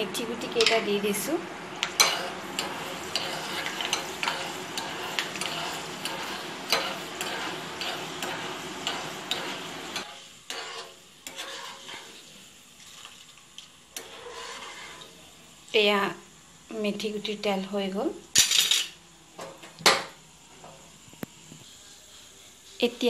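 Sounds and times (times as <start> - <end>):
seeds sizzling in hot oil: 0.6 - 18.5.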